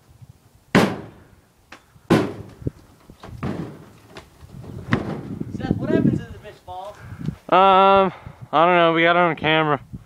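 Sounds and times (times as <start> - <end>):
heavy bangs on wooden coop: 0.7 - 1.2, 2.1 - 2.6, 3.3 - 4.0, 4.8 - 5.4.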